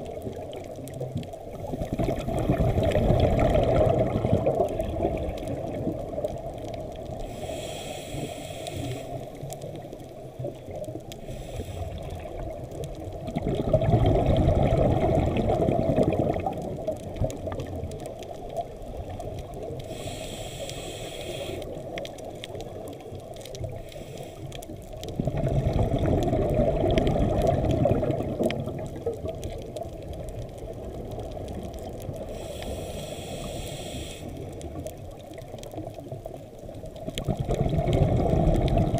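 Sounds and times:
low wash of water: 0:00.0 - 0:09.6, 0:10.4 - 0:21.7, 0:25.0 - 0:35.9, 0:37.0 - 0:38.9
bubbling exhales: 0:01.5 - 0:06.4, 0:13.2 - 0:16.9, 0:25.1 - 0:29.4, 0:37.1 - 0:38.9
regulator hissing inhales: 0:07.2 - 0:09.4, 0:11.2 - 0:12.1, 0:19.8 - 0:21.8, 0:23.8 - 0:24.6, 0:32.3 - 0:34.5.

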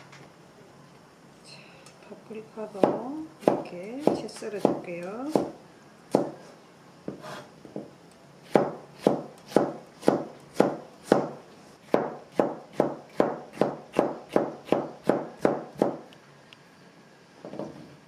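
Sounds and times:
knife slicing pepper on cutting board: 0:08.4 - 0:16.0.

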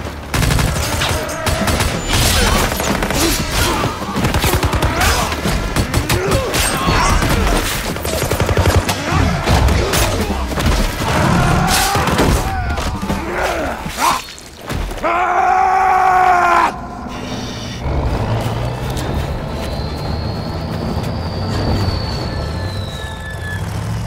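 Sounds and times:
rapid rifle fire: 0:00.2 - 0:09.9.

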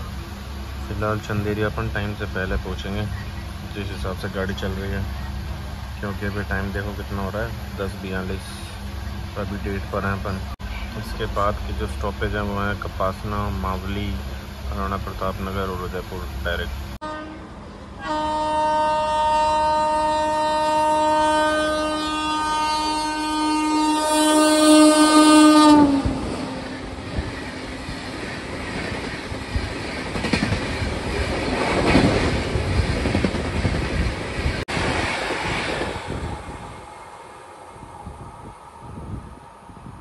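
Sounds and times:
train coaches rumbling past: 0:00.0 - 0:40.0
train horn blast: 0:17.0 - 0:27.1
wheels clattering over rail joints: 0:27.1 - 0:36.0.

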